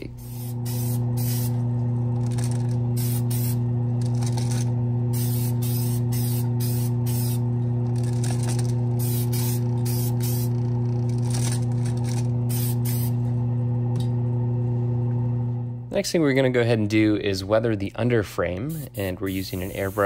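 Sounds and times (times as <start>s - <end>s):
aerosol spray can hissing: 0.0s - 1.6s, 2.2s - 7.4s, 8.0s - 10.6s, 12.5s - 13.2s, 18.7s - 20.0s
low hum of spray booth: 0.0s - 20.0s.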